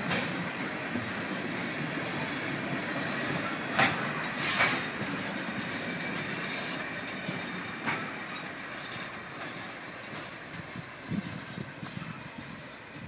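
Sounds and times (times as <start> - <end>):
train wheels rumbling on rails: 0.0 - 13.0
high-pitched wheel squeal: 4.4 - 5.1.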